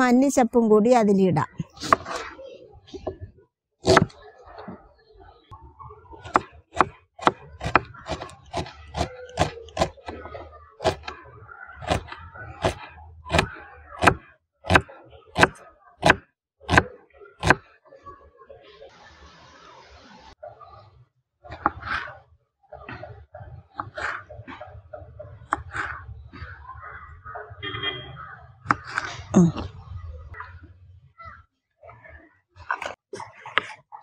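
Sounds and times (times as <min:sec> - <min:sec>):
knife chopping on wooden board: 0:03.8 - 0:04.1, 0:06.3 - 0:11.1, 0:11.8 - 0:17.6.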